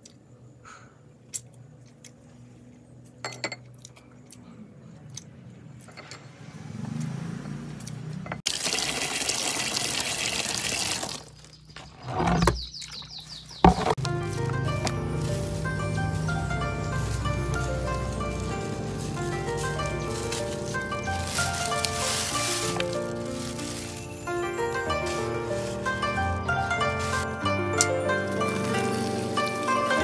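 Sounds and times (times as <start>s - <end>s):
water rushing into plastic basin: 8.5s - 11.5s.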